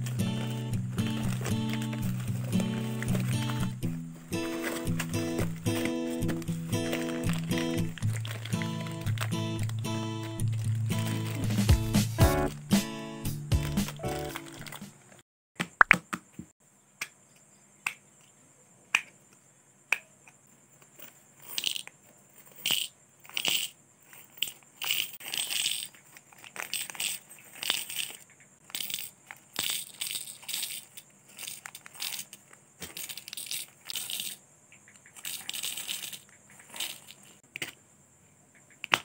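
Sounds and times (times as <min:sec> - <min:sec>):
small metal pieces rattling: 0:00.0 - 0:11.7, 0:13.8 - 0:14.8, 0:20.9 - 0:34.4, 0:35.0 - 0:37.4
plastic bags crinkling: 0:00.0 - 0:12.6, 0:13.6 - 0:15.0, 0:24.8 - 0:34.3, 0:35.1 - 0:37.4.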